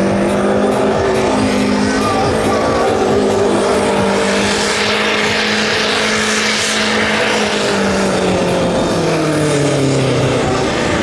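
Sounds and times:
diesel tractor engine under load: 0:00.0 - 0:11.0.

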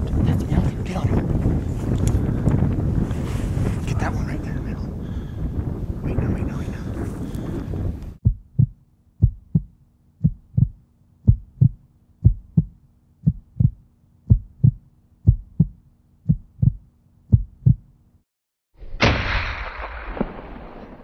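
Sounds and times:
heartbeat thumps: 0:08.2 - 0:17.9.

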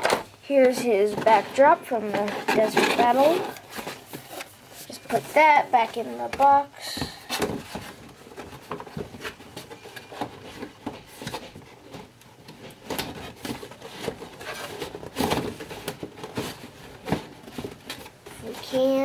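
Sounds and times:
packaging rustling and clicking: 0:07.3 - 0:18.6.

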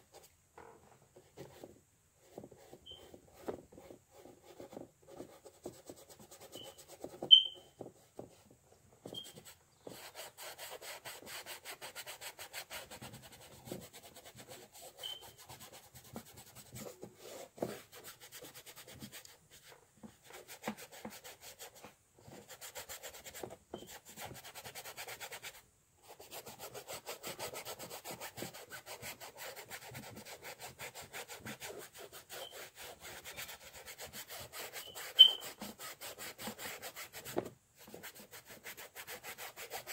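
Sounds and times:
paintbrush scrubbing canvas: 0:01.4 - 0:08.4, 0:09.0 - 0:39.9
sharp high-pitched chirp: 0:07.3 - 0:07.7, 0:34.8 - 0:35.5.

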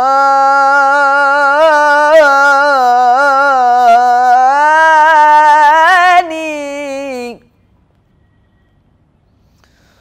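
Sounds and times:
young man singing a long note: 0:00.0 - 0:07.5.

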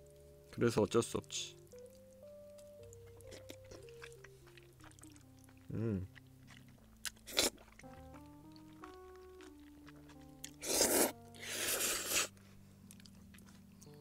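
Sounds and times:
soft background music: 0:00.0 - 0:14.0
crunchy bite: 0:04.8 - 0:12.3
voiced mouth sound: 0:05.6 - 0:06.2.

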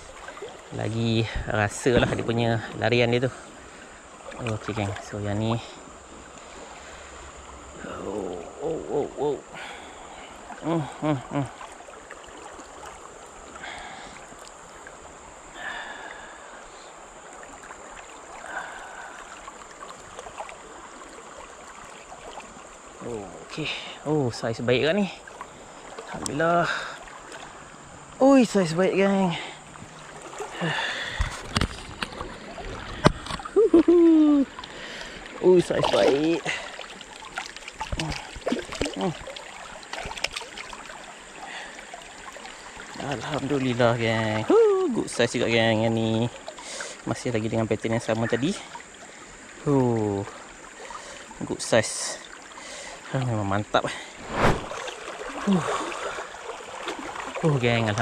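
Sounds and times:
river water flowing: 0:00.0 - 0:58.0
fish splashing in water: 0:30.0 - 0:43.7, 0:54.2 - 0:58.0.

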